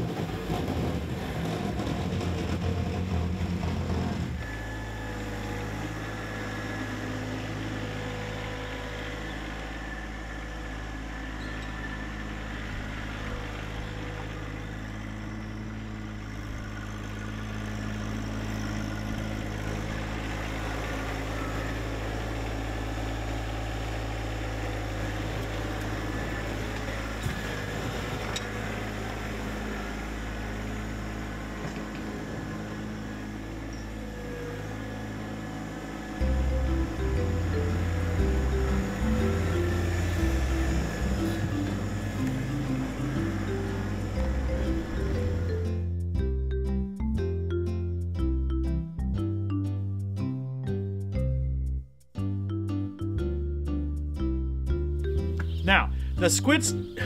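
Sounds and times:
tractor engine idling: 0:00.0 - 0:57.0
louder busier sound: 0:34.6 - 0:49.7.

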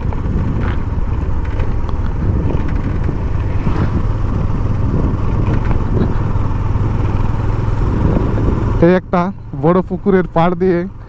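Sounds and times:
motorcycle running: 0:00.0 - 0:11.0.

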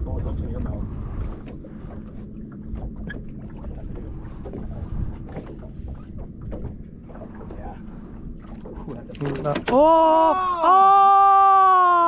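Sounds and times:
wind on microphone: 0:00.0 - 0:08.8
water against boat hull: 0:00.0 - 0:10.7.

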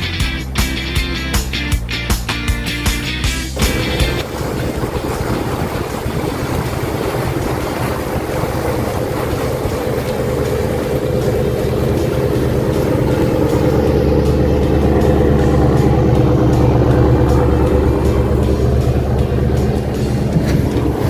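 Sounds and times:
motorboat engine running: 0:00.0 - 0:21.0
wind noise: 0:03.6 - 0:11.7
water noise: 0:03.6 - 0:21.0.

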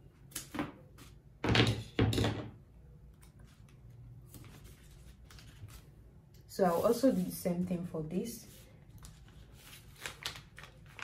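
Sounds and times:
paper handling: 0:03.2 - 0:06.0, 0:08.5 - 0:11.0.

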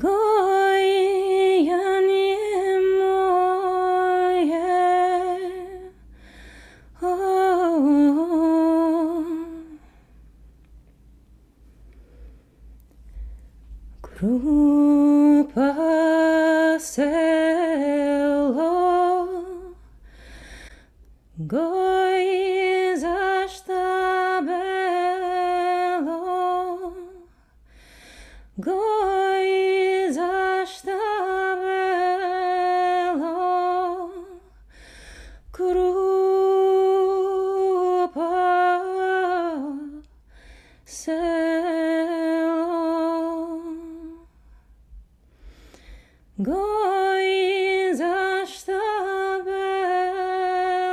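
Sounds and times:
woman singing unaccompanied: 0:00.0 - 0:06.0, 0:07.0 - 0:09.9, 0:14.0 - 0:19.9, 0:21.3 - 0:27.3, 0:28.6 - 0:34.6, 0:35.5 - 0:40.1, 0:40.9 - 0:44.3, 0:46.4 - 0:50.9.

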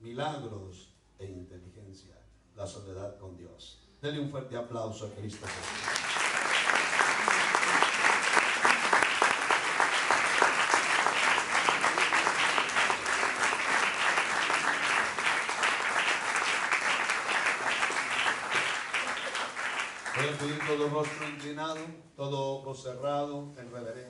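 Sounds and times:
crowd applauding: 0:05.4 - 0:21.8.

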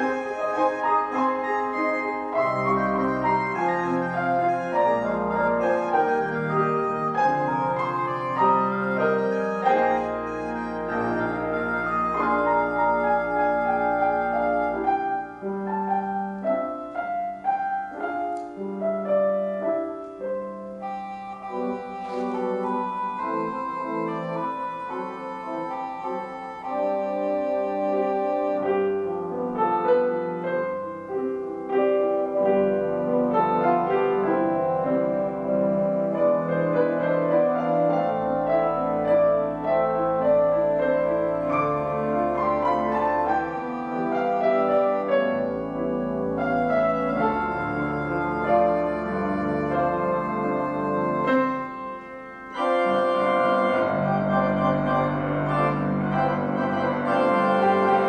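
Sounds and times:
instrumental keyboard chords: 0:00.0 - 0:58.0.

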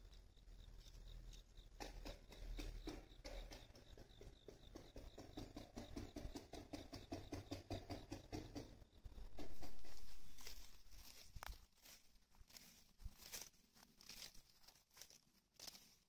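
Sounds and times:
faint handling clicks and rustles: 0:09.4 - 0:16.0.

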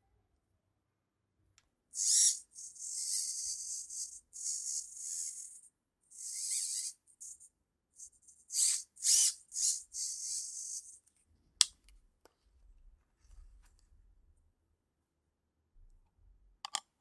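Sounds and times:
servo motor whirring: 0:02.0 - 0:07.4, 0:08.0 - 0:11.0.

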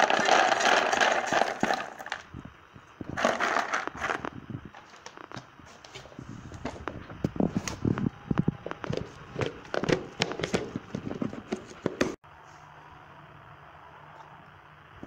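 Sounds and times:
dry treats rattling in plastic box: 0:00.0 - 0:02.2, 0:03.2 - 0:04.3.

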